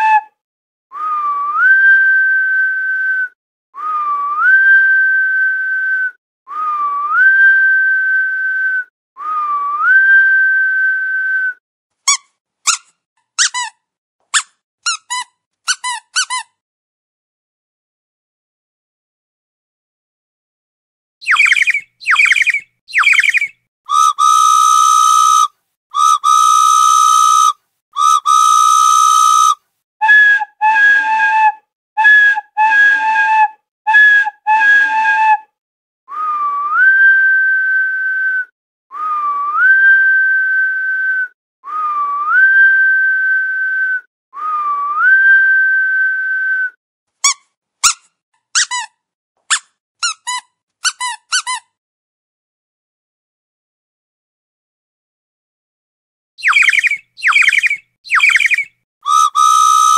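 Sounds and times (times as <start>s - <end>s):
rising whistles: 21.2s - 29.6s, 56.4s - 59.9s
falling whistle chirps: 21.2s - 31.2s, 56.4s - 59.9s.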